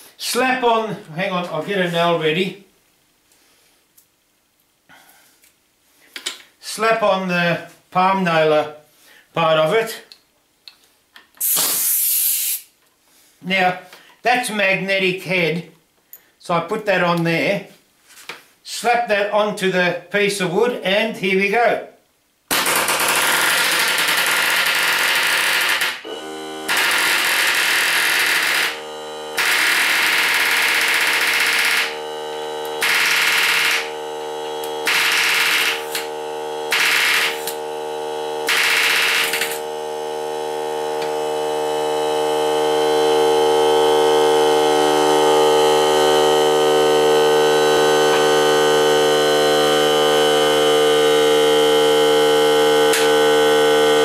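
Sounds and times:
pneumatic nailer hammering: 11.4s - 12.0s, 22.5s - 37.7s, 38.4s - 39.7s, 52.8s - 53.2s
air compressor humming: 11.4s - 12.6s, 22.7s - 54.0s.

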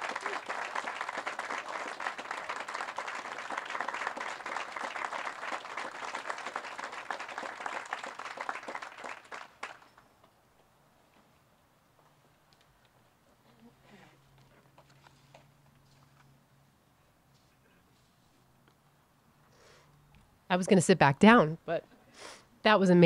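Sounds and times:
crowd applauding: 0.0s - 10.1s.

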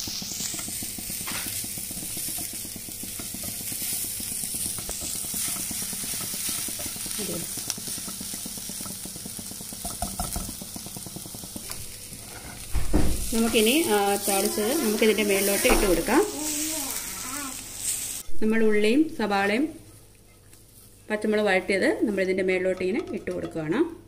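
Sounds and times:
spatula scraping pan: 0.0s - 17.2s
onions sizzling in hot oil: 0.0s - 22.7s.

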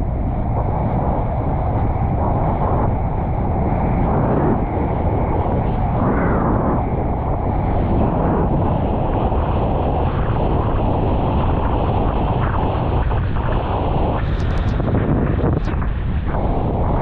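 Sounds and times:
strong wind on microphone: 0.0s - 17.0s.

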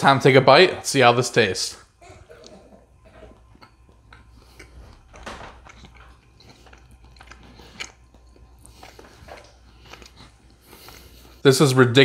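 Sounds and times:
man chewing food: 1.9s - 11.4s.

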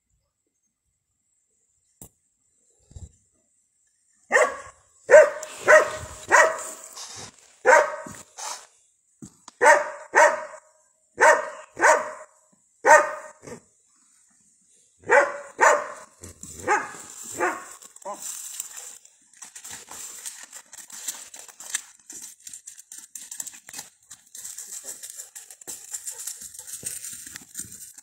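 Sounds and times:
dog barking: 4.3s - 6.9s, 7.6s - 8.3s, 9.6s - 13.6s, 15.0s - 18.2s.

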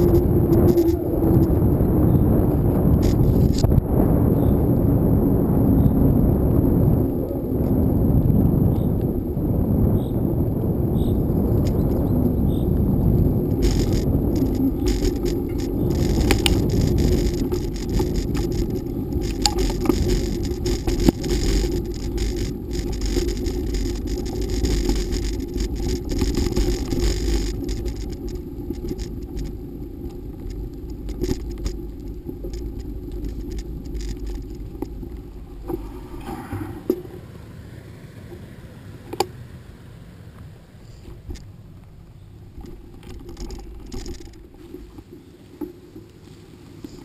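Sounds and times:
bike clicks and rattles: 0.0s - 3.8s, 10.0s - 37.2s, 41.0s - 47.0s
tyres rumbling on gravel: 0.0s - 47.0s.

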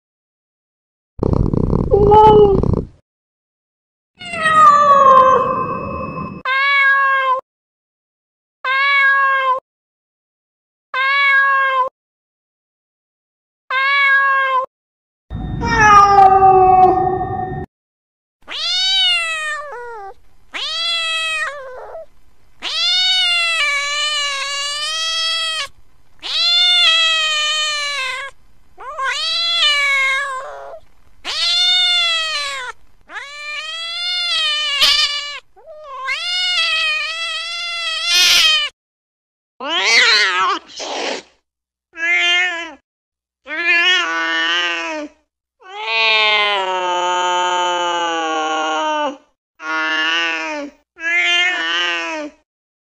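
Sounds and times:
cat meowing: 1.9s - 2.8s, 4.2s - 7.4s, 8.7s - 9.6s, 11.0s - 11.9s, 13.7s - 14.7s, 15.6s - 17.4s, 18.5s - 38.7s, 39.6s - 40.7s, 42.0s - 42.8s, 45.6s - 46.7s, 51.0s - 52.0s.

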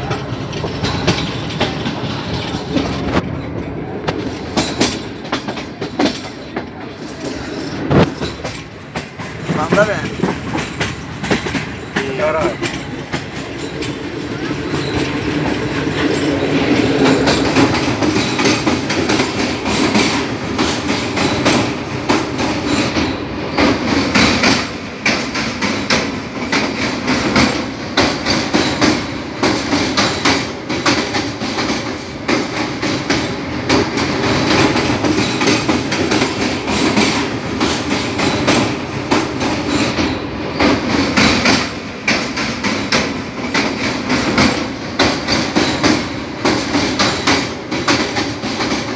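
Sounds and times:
train wheels clattering on rails: 0.0s - 48.9s.

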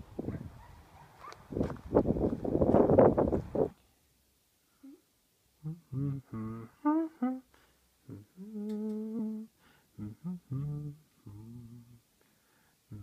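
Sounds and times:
person humming: 4.8s - 12.1s.

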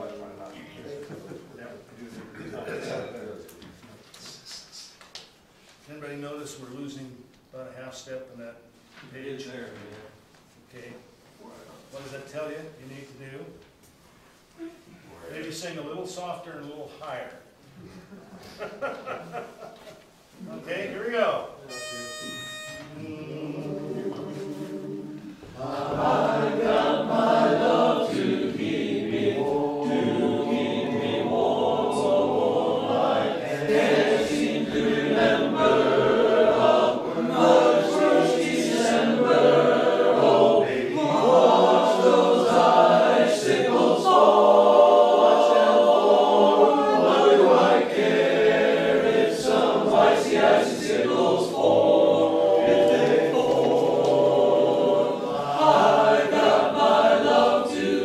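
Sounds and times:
choir singing unaccompanied: 21.7s - 58.0s.

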